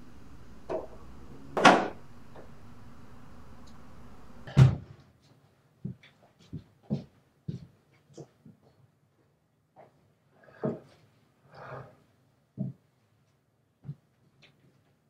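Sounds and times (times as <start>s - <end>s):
low steady hum: 0.0s - 4.8s.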